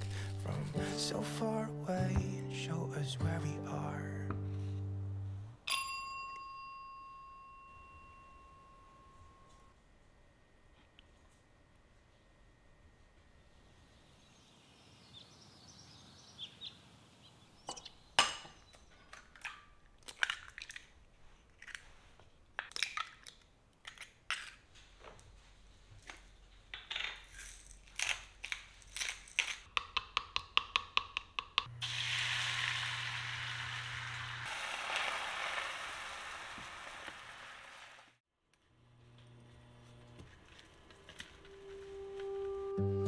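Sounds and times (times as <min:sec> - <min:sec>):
eggs cracked in a glass: 0:18.2 - 0:21.0, 0:22.6 - 0:24.6
egg being beaten: 0:29.7 - 0:32.4
egg sizzling in a pan: 0:31.7 - 0:38.2.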